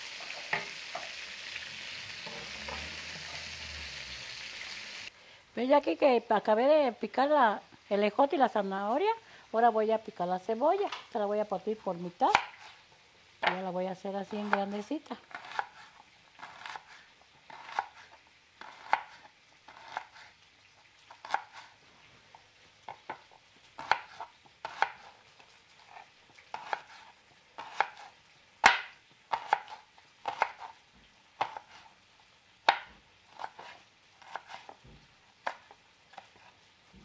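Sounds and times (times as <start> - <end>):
knife slicing onion on board: 12.3 - 12.8, 14.3 - 20.3, 21.1 - 21.8, 22.9 - 30.8, 31.4 - 32.0, 32.7 - 36.6.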